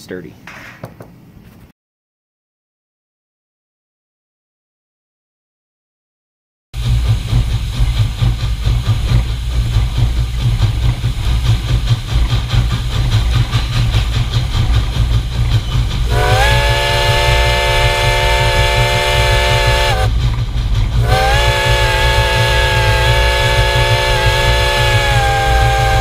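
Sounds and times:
locomotive running rumble: 0:06.8 - 0:26.0
steam whistle chord: 0:16.1 - 0:20.2, 0:21.0 - 0:26.0.

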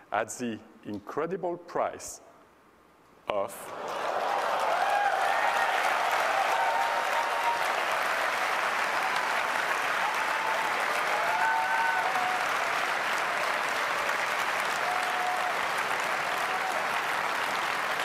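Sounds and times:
audience applauding: 0:03.7 - 0:18.0.

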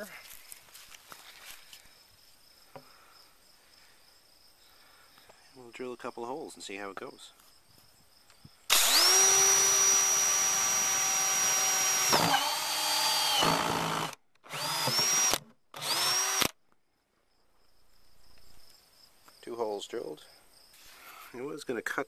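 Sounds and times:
power drill boring plastic bucket: 0:08.7 - 0:16.6.

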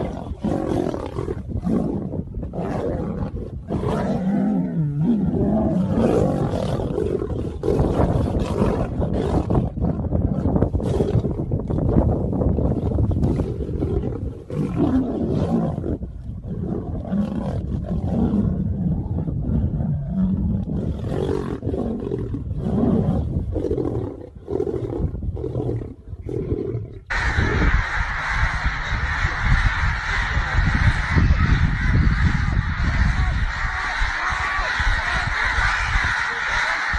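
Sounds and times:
lions growling and roaring: 0:00.0 - 0:11.9, 0:12.5 - 0:27.6.

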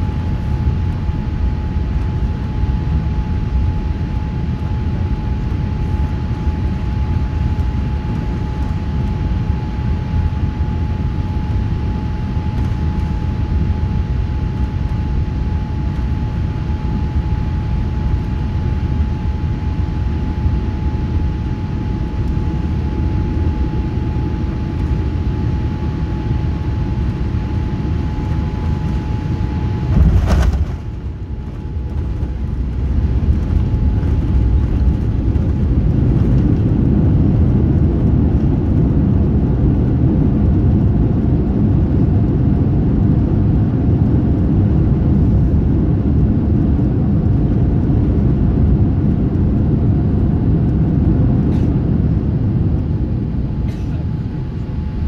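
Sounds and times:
thin whine: 0:00.0 - 0:36.4
jet cabin rumble: 0:00.0 - 0:55.0
wheels thumping on runway: 0:29.8 - 0:31.1.

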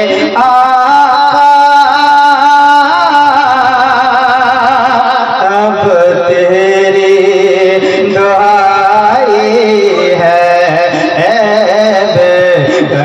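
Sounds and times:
person singing wavering melody: 0:00.0 - 0:13.0.

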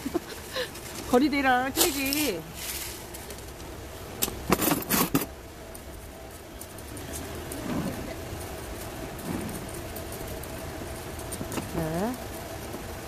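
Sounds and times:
faint ticking in gravel: 0:05.6 - 0:13.0.

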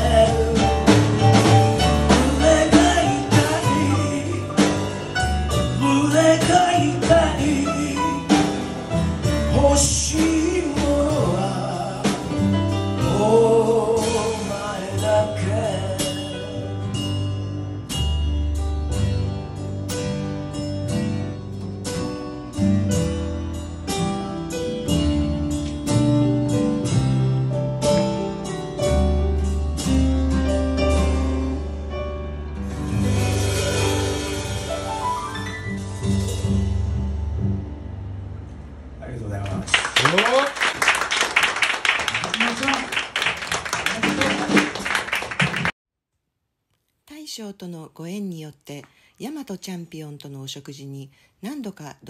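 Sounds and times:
man singing: 0:00.0 - 0:17.0
upright bass: 0:00.0 - 0:45.7
acoustic guitar: 0:00.0 - 0:45.8
drums: 0:00.0 - 0:45.8.

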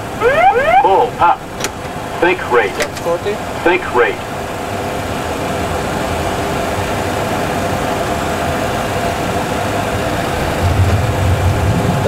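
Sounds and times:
cockpit airflow noise: 0:00.0 - 0:05.1, 0:09.5 - 0:12.0
low rumble of wheels touching runway: 0:06.2 - 0:12.0.

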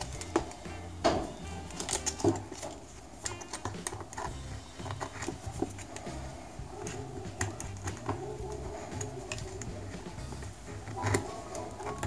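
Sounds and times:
probe tips clicking on plastic: 0:01.6 - 0:06.2.

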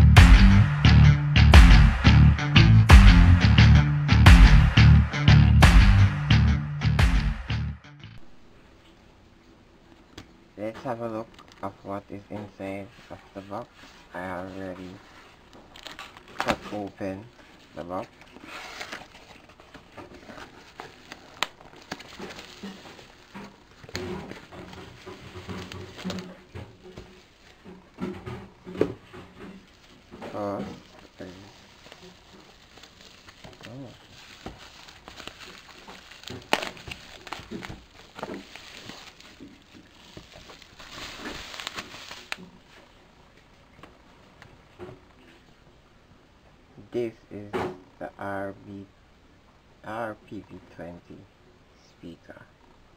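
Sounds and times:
bubble wrap crinkling: 0:12.9 - 0:43.0
box rubbing and shuffling: 0:16.4 - 0:42.8
cardboard box rustling: 0:17.6 - 0:28.0, 0:28.6 - 0:42.5
bubble wrap snap: 0:20.3 - 0:26.4, 0:30.7 - 0:42.5.

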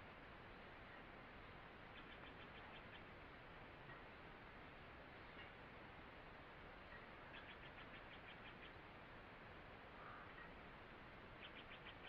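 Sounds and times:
steady faint hiss: 0:00.0 - 0:12.0.

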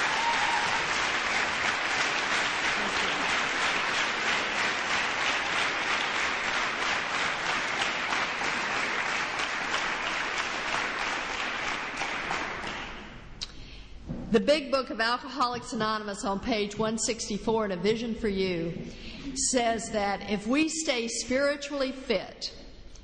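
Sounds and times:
people applauding: 0:00.0 - 0:13.2.

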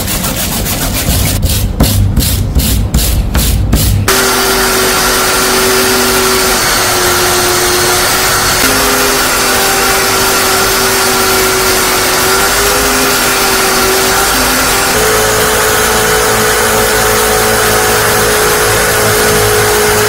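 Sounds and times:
electric power tool running: 0:04.1 - 0:20.0.

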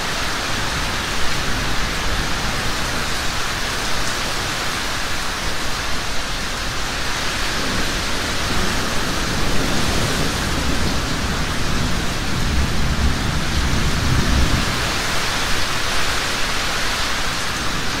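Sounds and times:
heavy rain falling: 0:00.0 - 0:18.0
thunder rumbling: 0:07.5 - 0:16.5.

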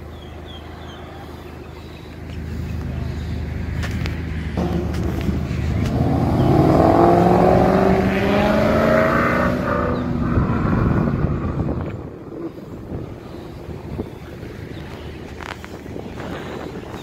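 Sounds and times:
car engine accelerating past: 0:04.6 - 0:11.5.

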